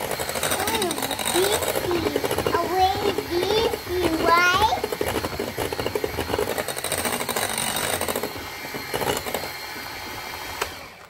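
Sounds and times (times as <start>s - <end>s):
electric hand mixer whirring: 0.0s - 11.0s.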